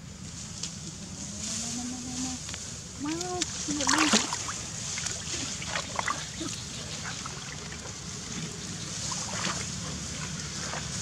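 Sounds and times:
water splashing and trickling: 0:03.0 - 0:11.0.

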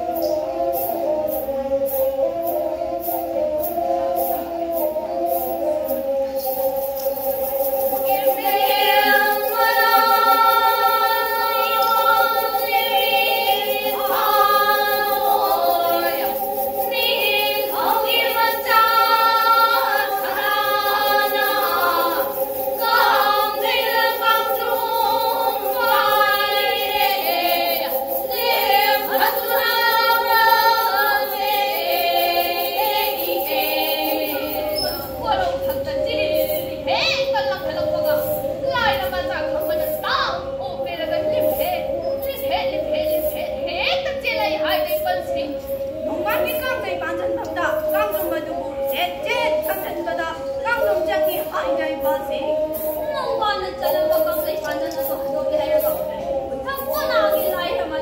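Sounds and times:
bowed fiddles playing melody: 0:00.0 - 0:37.1
women singing together: 0:00.0 - 0:58.0.

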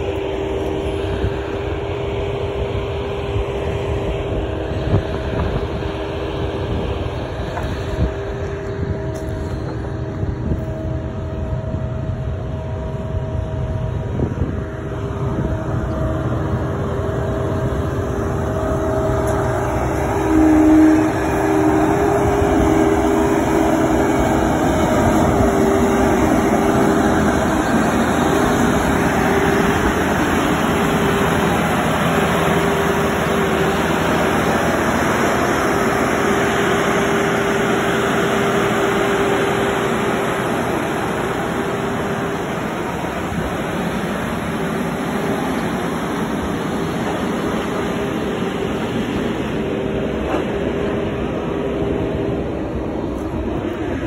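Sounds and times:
harvester engine and hydraulics: 0:00.0 - 0:54.0.

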